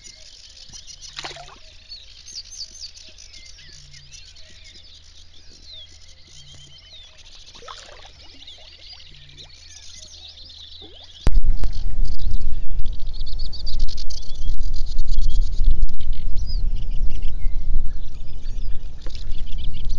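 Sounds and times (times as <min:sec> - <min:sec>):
birds chirping and trilling: 0:00.0 - 0:19.9
animal splashing in water: 0:01.1 - 0:01.7, 0:07.4 - 0:09.6.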